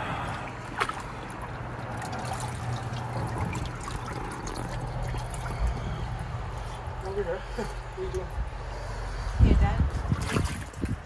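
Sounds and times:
water trickling and lapping: 0.0 - 11.0.

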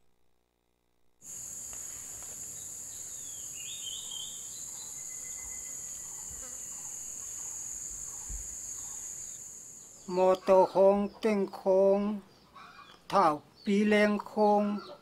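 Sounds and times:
high-pitched insect drone: 1.2 - 10.2
bird chirps: 1.3 - 11.3.

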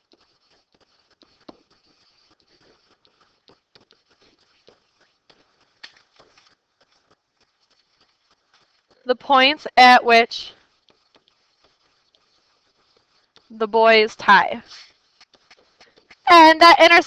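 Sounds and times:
pen tapping on whiteboard: 0.0 - 9.0, 10.5 - 13.5, 14.9 - 16.5.

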